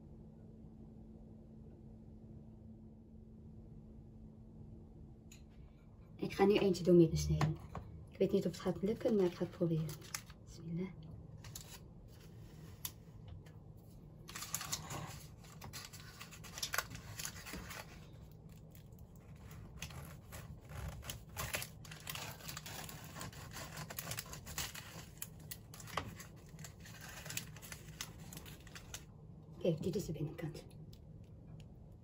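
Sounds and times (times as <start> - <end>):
paper case crinkling: 9.8 - 10.3, 14.2 - 29.1
knife sawing through pastry: 19.4 - 25.1.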